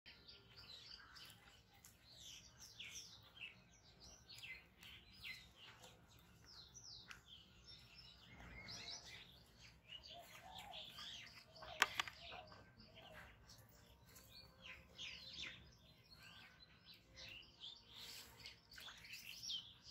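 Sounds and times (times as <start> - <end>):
small birds chirping: 0.1 - 19.9
sharp clicks: 11.6 - 12.4.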